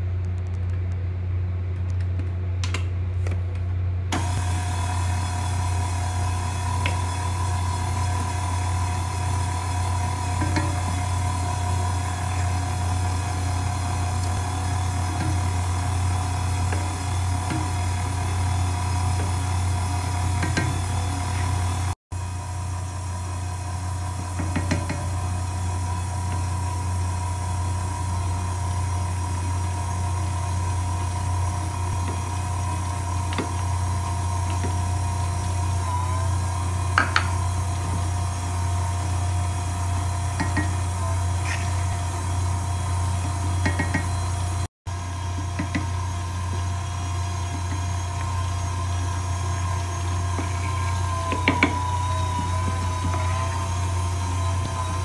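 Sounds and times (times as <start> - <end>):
stand mixer motor running: 4.1 - 55.0.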